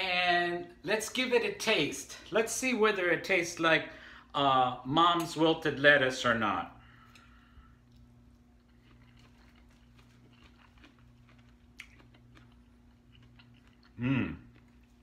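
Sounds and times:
steady low hum: 0.0 - 15.0
person chewing: 7.0 - 15.0.

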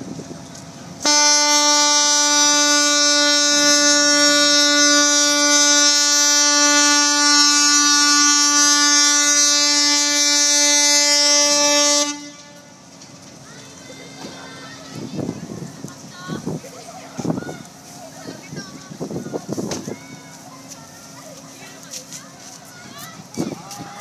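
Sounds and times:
ship horn blast: 1.0 - 12.9.

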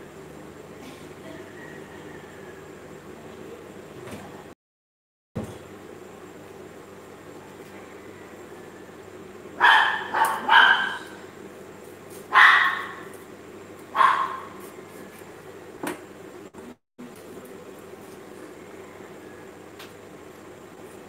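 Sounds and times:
steady background hum: 0.0 - 4.6, 5.4 - 21.0
dog barking: 9.6 - 11.2, 12.3 - 13.1, 13.9 - 14.6.

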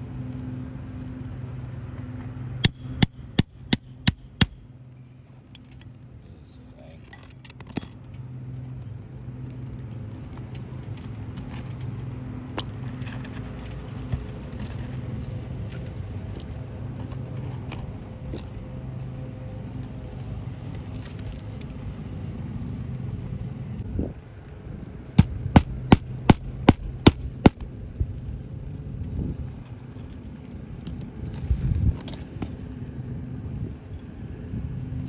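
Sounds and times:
steady low hum: 0.0 - 35.0
hammer blows: 2.6 - 4.6.

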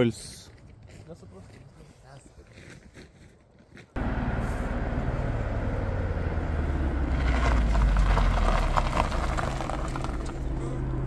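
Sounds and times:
car engine running: 4.0 - 11.0
crackling noise: 7.2 - 10.4.

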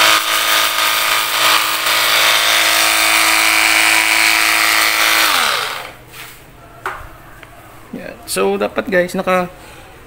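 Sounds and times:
pressure washer pump whining: 0.0 - 6.0.

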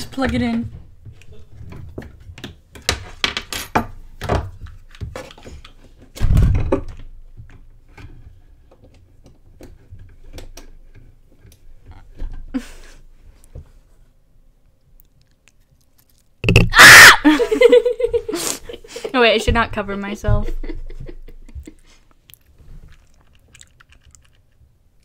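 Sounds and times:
loud thump: 16.4 - 16.8
small clicks taps and rustles: 20.5 - 24.6.

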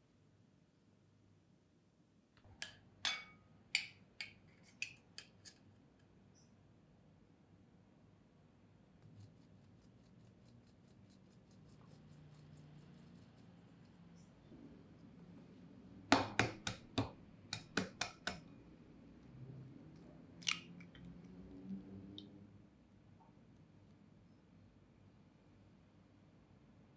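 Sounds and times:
sieve tapping on bowl: 2.6 - 3.9, 16.1 - 18.4
egg cracking on glass bowl: 16.1 - 18.4.

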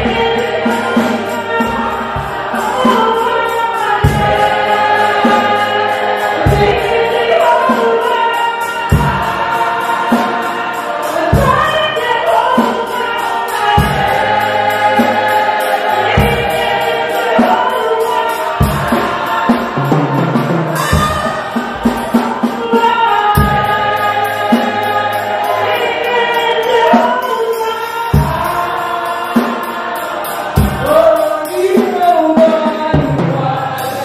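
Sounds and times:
choir and congregation singing: 0.0 - 34.0
deep drum beat: 18.6 - 22.7, 23.4 - 24.2.

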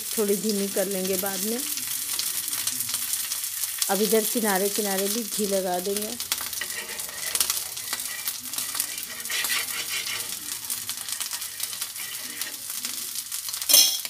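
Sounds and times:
food sizzling in hot fat: 0.0 - 14.0
steel spoon scraping a griddle: 6.3 - 14.0
sharp metal clink: 13.7 - 14.0.

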